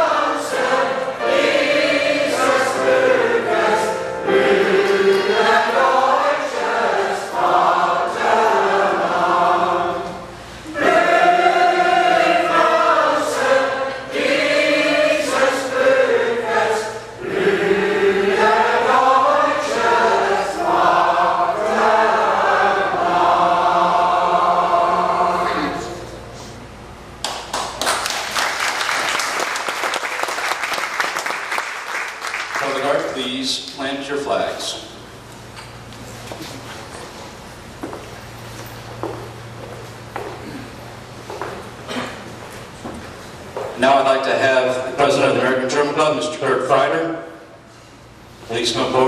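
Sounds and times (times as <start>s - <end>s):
choir singing: 0.0s - 26.5s.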